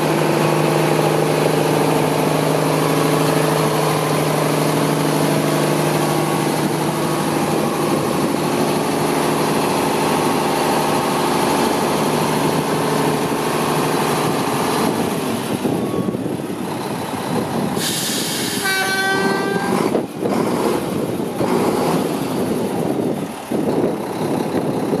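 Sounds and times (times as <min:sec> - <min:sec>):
diesel engine idling: 0:00.0 - 0:25.0
air hiss with toot: 0:17.8 - 0:19.7.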